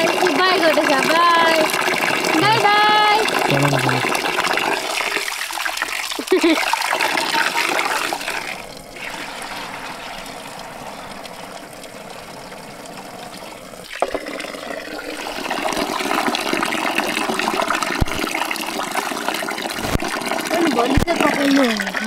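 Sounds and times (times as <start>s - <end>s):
tap water running into metal bowl: 0.0s - 22.0s.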